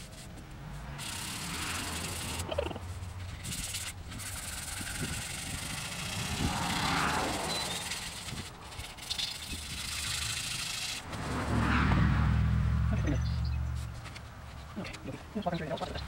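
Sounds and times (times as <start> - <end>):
sandpaper rubbing: 0.0 - 11.4, 13.7 - 16.0
low rumble: 11.1 - 14.1.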